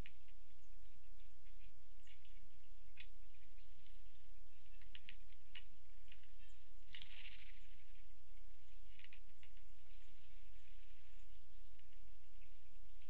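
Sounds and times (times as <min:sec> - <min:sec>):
low electrical hum: 0:00.0 - 0:13.0
woodpeckers tapping: 0:00.0 - 0:13.0
brief rustle: 0:04.7 - 0:08.1.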